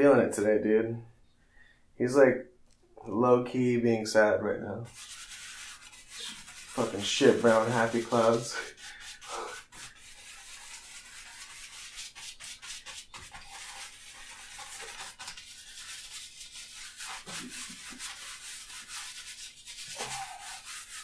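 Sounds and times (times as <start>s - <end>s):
paintbrush scrubbing on canvas: 4.8s - 21.0s.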